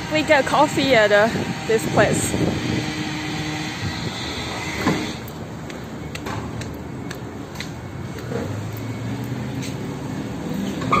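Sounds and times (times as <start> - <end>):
street traffic hum: 0.0 - 11.0
footsteps on concrete: 4.8 - 10.8.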